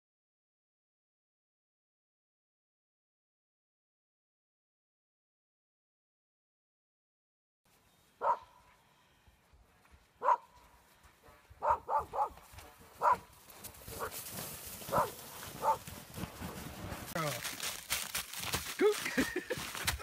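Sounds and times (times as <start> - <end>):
dog barking: 8.2 - 8.6, 10.2 - 10.6, 11.6 - 12.4, 13.0 - 13.3, 13.9 - 14.2, 14.9 - 15.9.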